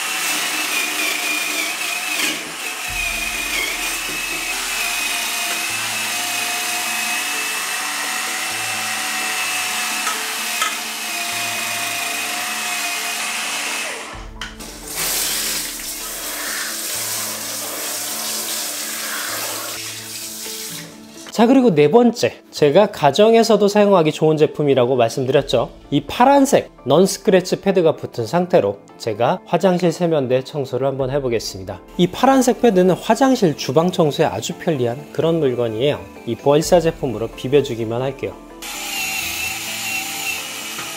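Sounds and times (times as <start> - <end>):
power scrubber whine: 0.0 - 19.8, 38.6 - 40.9
running water hiss: 14.7 - 21.0
pad scrubbing a pot: 14.8 - 20.9.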